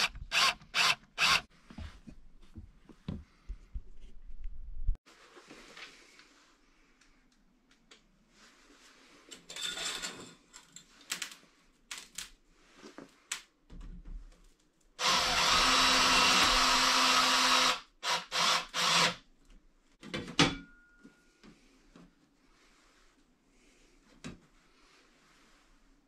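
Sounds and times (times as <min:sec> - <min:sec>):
cordless drill running: 0:00.0 - 0:01.5, 0:15.0 - 0:19.2.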